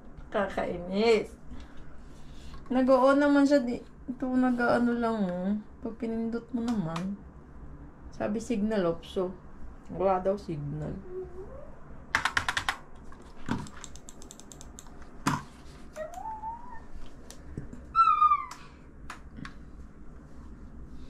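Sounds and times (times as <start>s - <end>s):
computer keyboard clicking: 12.1s - 12.8s, 13.5s - 15.4s.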